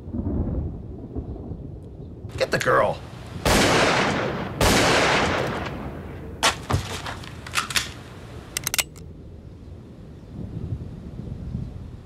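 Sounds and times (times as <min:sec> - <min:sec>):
shotgun blast with echo: 0:03.4 - 0:06.6
gunshots: 0:03.4 - 0:08.1
quick clicks: 0:07.3 - 0:09.0.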